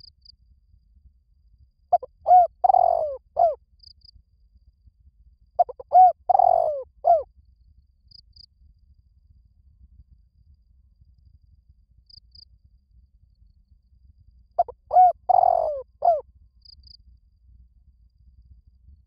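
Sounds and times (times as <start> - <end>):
dove cooing: 1.9 - 3.6, 5.6 - 7.2, 14.6 - 16.2.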